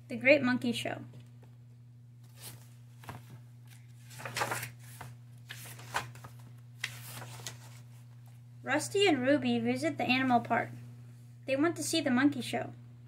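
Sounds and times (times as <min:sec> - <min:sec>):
low steady hum: 0:00.0 - 0:13.0
book pages turning: 0:02.2 - 0:08.3.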